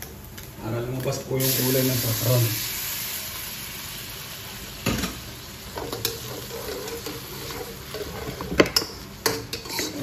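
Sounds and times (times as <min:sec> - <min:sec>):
food sizzling in oil: 0:01.3 - 0:10.0
metal spatula scraping wok: 0:05.9 - 0:08.5, 0:09.3 - 0:10.0.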